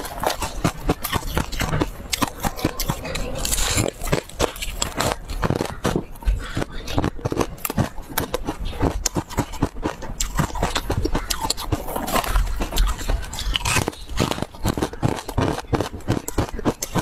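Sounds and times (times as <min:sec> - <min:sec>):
biting and chewing ice: 0:00.0 - 0:17.0.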